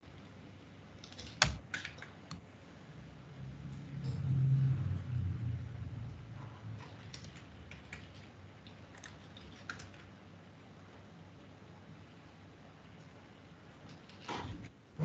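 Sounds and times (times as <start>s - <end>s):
computer keyboard clicks: 1.0s - 2.4s, 6.8s - 10.1s
low rumble: 3.3s - 6.6s.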